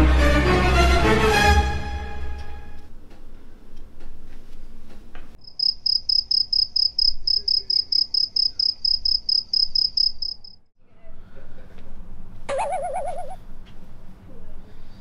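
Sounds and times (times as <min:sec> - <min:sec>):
cricket chirping: 0:05.4 - 0:10.7.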